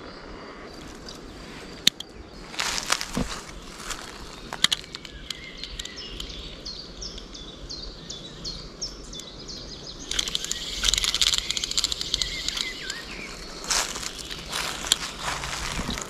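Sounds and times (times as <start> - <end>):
light outdoor hiss: 0.0 - 16.0
small bird chirping: 0.0 - 16.0
crackling of rustled material: 2.5 - 6.0, 10.1 - 16.0.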